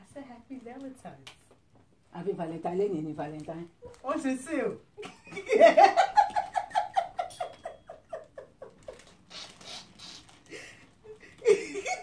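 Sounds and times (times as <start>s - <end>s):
woman laughing: 5.0s - 9.1s, 10.5s - 12.0s.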